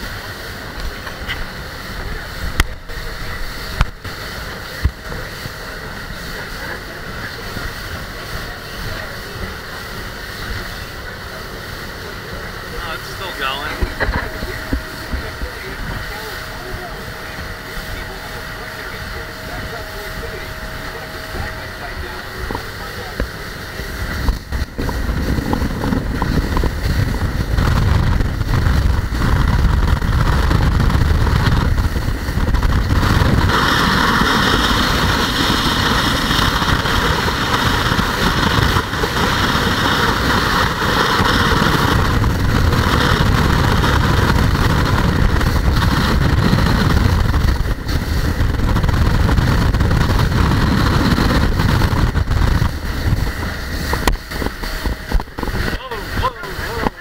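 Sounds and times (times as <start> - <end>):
boat engine drone: 0.0 - 57.0
wind: 0.0 - 57.0.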